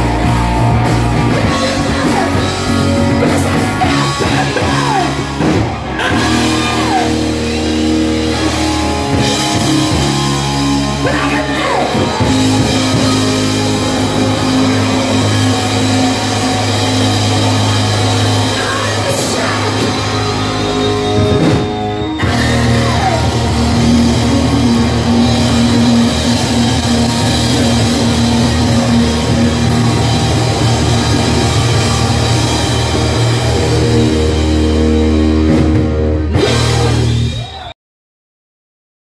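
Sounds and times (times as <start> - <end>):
drum kit: 0.0 - 37.7
electric guitar: 0.0 - 37.7
person singing: 0.8 - 21.5.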